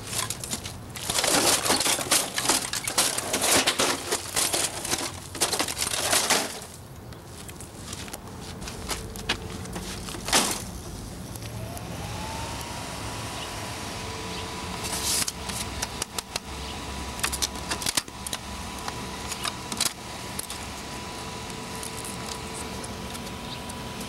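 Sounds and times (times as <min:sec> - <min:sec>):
motor whine: 0:10.8 - 0:24.0.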